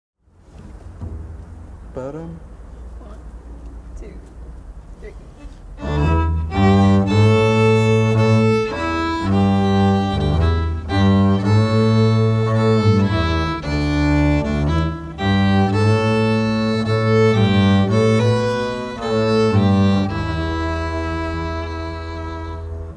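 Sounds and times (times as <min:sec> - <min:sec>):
bowed upright bass: 0:00.3 - 0:22.9
fiddle melody: 0:05.4 - 0:22.9.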